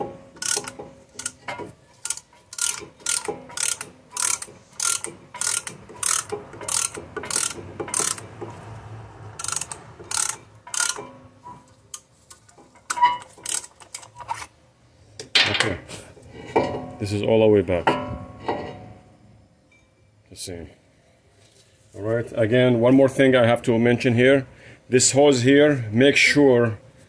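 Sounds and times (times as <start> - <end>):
ratcheting hand tool clicking: 0.4 - 8.3, 9.4 - 11.1, 11.9 - 14.5.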